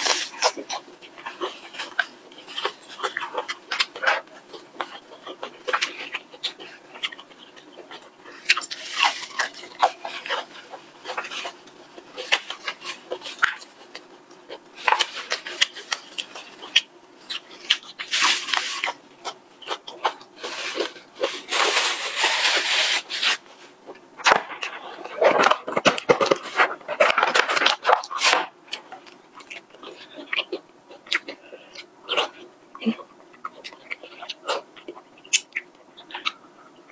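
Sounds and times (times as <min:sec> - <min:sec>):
plastic gloves crinkling: 0:00.0 - 0:29.2
crunching and chewing fried food: 0:00.0 - 0:36.9.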